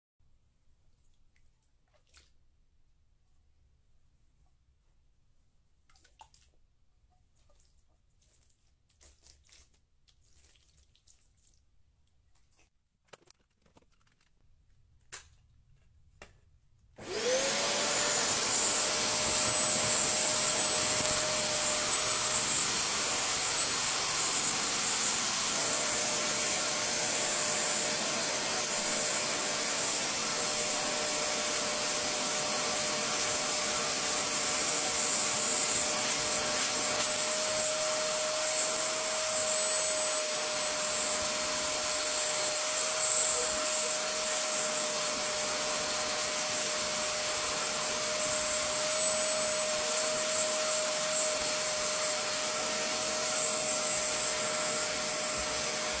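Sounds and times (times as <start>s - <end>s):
carpet cleaner motor: 17.0s - 56.0s
tool rubbing on carpet: 17.0s - 56.0s.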